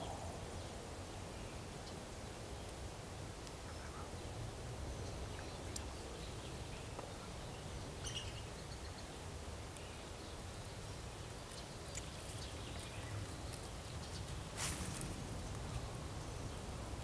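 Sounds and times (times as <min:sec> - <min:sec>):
faint bird chirps: 0:03.6 - 0:09.1.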